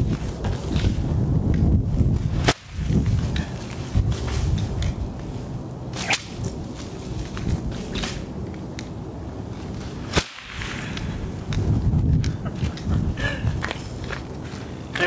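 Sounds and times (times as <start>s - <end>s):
metal chain whip cracking: 5.9s - 6.6s.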